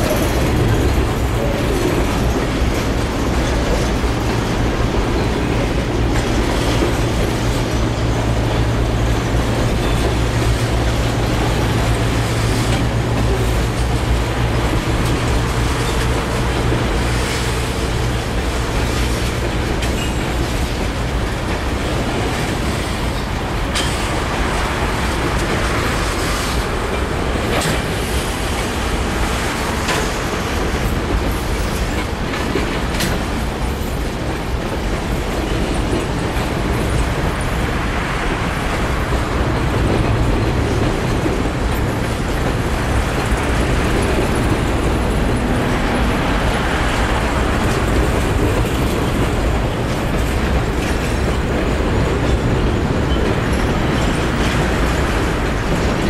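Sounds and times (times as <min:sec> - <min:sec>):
freight train wheels rumbling: 0:00.0 - 0:56.0
wheels clacking over rail joints: 0:00.0 - 0:56.0.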